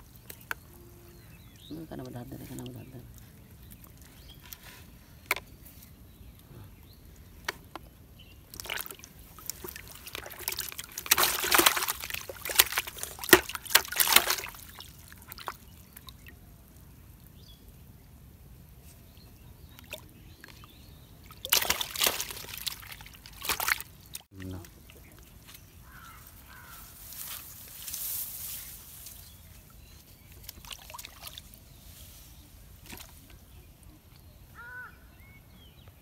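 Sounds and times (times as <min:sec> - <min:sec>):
fish splashing in bucket of water: 0:08.5 - 0:16.4, 0:19.8 - 0:25.3, 0:30.3 - 0:31.5.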